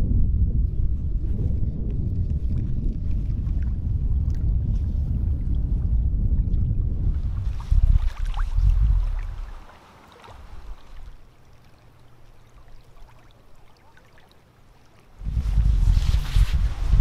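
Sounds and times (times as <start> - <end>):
wind buffeting microphone: 0.0 - 11.3, 15.2 - 17.0
small waves lapping: 7.2 - 16.8.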